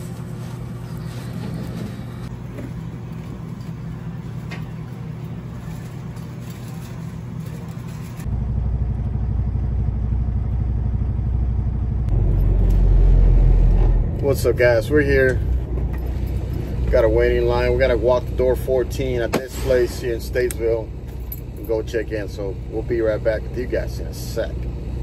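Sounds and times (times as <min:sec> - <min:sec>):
steady low hum: 0:00.0 - 0:25.0
truck diesel engine running: 0:08.2 - 0:25.0.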